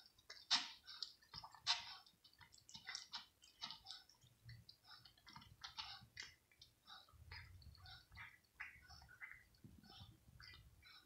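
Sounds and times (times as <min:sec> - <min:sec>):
cat chewing food: 0:00.0 - 0:10.8.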